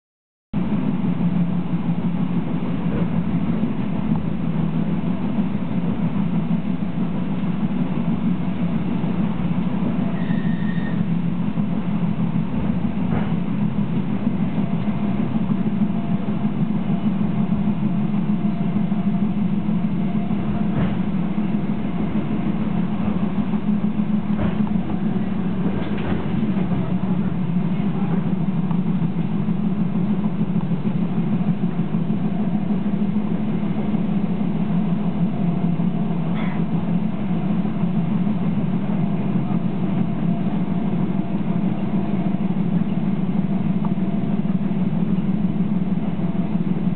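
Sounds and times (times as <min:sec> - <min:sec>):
train interior drone: 0:00.6 - 0:46.9
train knocks: 0:00.6 - 0:46.9.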